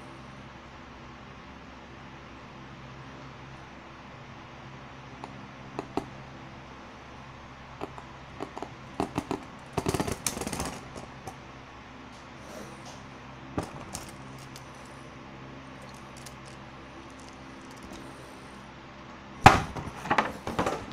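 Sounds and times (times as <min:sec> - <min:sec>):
steady low hum: 0:00.0 - 0:20.9
spinning tops clattering together: 0:13.6 - 0:14.9, 0:15.8 - 0:18.0.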